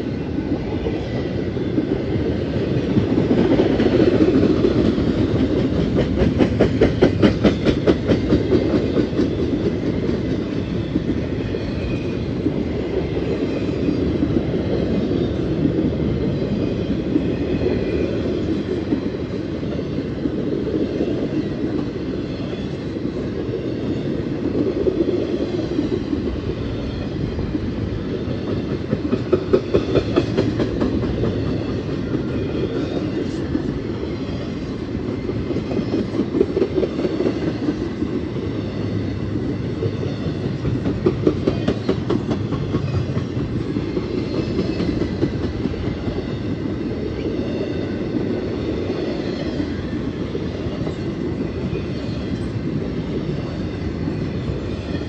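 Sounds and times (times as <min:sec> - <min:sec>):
steel wheels rumbling on rail: 0:00.0 - 0:55.0
wheels clacking over rail joints: 0:02.7 - 0:12.6, 0:27.4 - 0:38.2, 0:39.8 - 0:46.7.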